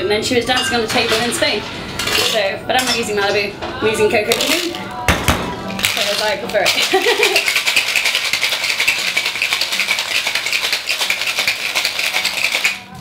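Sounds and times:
ice rattling in cocktail shaker: 5.7 - 13.0.

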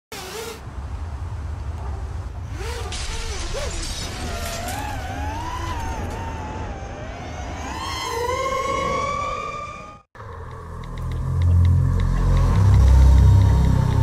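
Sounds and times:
shattering crash: 2.9 - 6.0.

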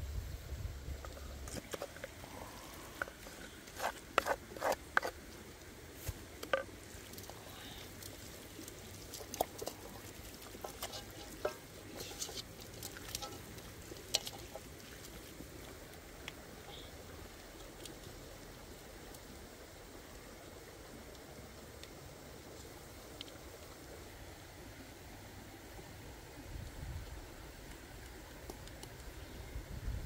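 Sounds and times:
wet squelching: 6.9 - 15.7.

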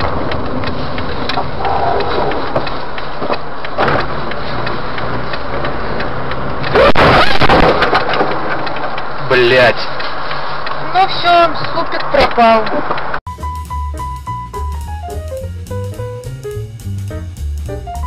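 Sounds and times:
scattered ticks: 0.0 - 6.8, 7.9 - 13.2
car engine and road noise: 0.0 - 18.0.

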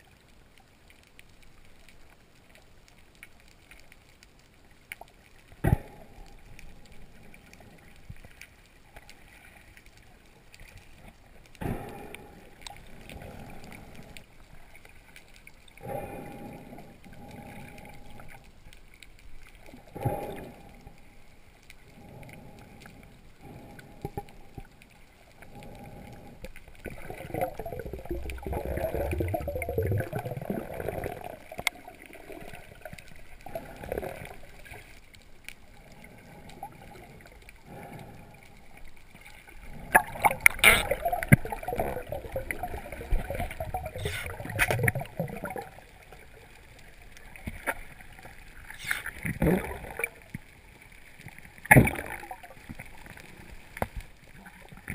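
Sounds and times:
underwater gurgling: 0.0 - 54.9.

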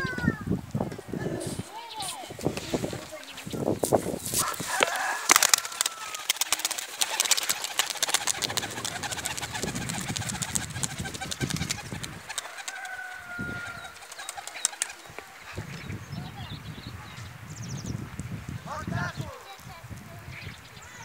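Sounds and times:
pigeon wings clattering: 1.4 - 15.5.

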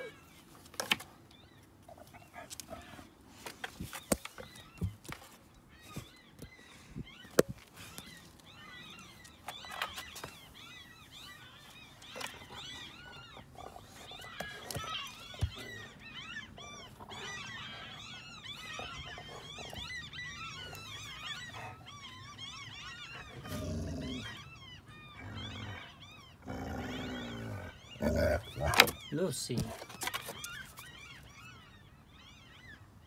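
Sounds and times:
puppies whimpering and squeaking: 5.6 - 26.4, 27.8 - 32.7.

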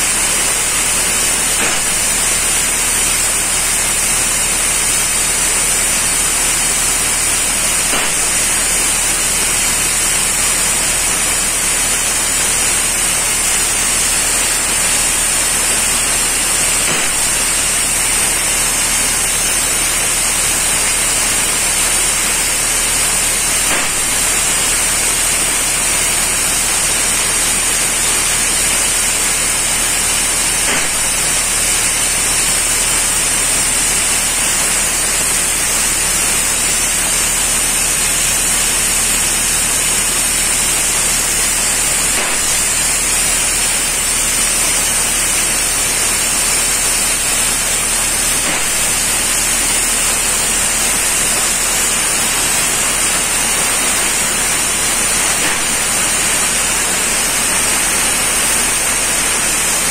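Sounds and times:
spray painting equipment hiss: 0.0 - 59.9.

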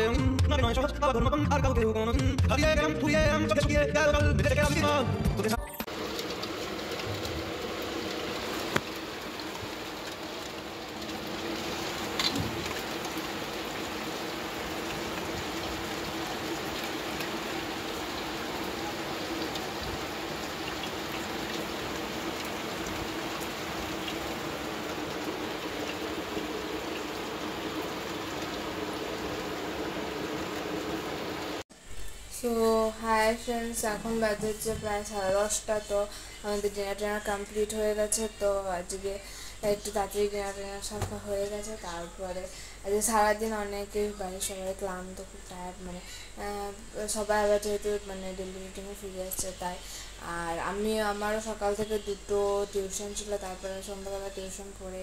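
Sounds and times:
heavy rain: 5.9 - 31.6.

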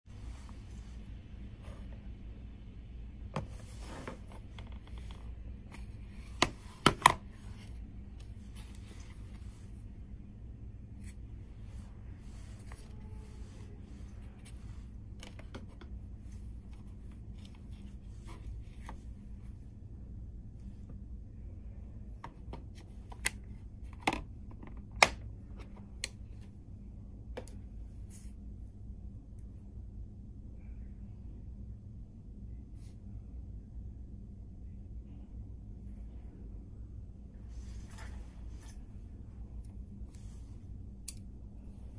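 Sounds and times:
low steady hum: 0.1 - 41.9.

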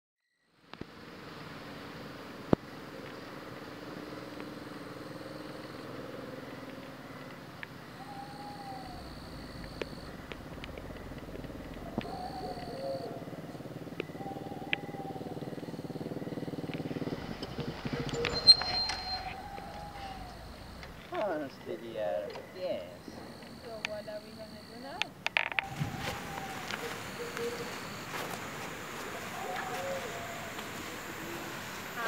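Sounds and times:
rising-and-falling calls: 4.8 - 22.2, 25.4 - 32.0
high steady chirr: 7.9 - 24.2
motorcycle engine running: 8.7 - 21.3.

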